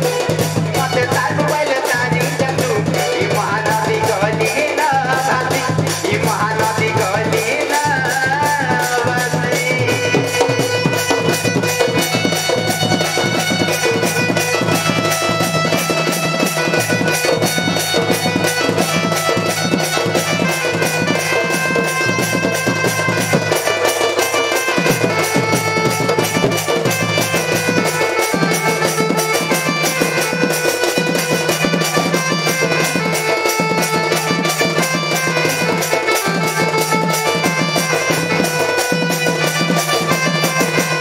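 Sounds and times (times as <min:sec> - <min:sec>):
drum fast beat: 0:00.0 - 0:41.0
reed instrument melody: 0:08.9 - 0:41.0.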